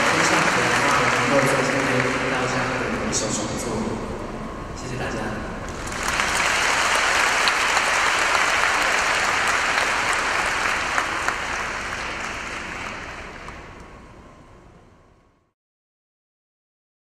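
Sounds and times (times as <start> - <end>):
audience applauding: 0.0 - 3.3, 5.7 - 13.8.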